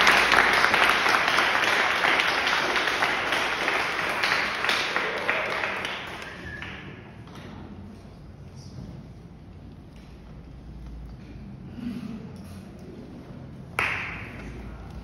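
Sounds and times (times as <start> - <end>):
audience applauding: 0.0 - 7.0.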